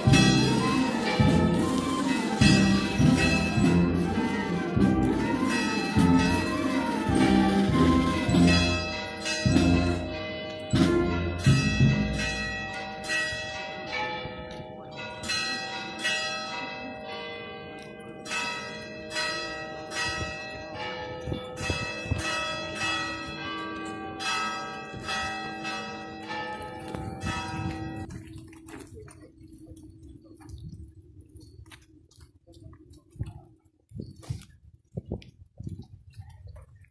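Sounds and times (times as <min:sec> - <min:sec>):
church bells ringing: 0:00.0 - 0:28.1.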